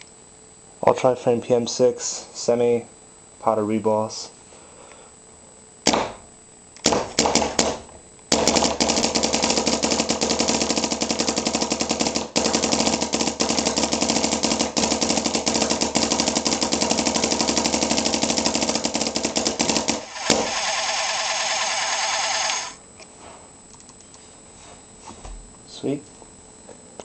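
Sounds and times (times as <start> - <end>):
paintball marker firing: 5.8 - 6.2, 6.8 - 22.8.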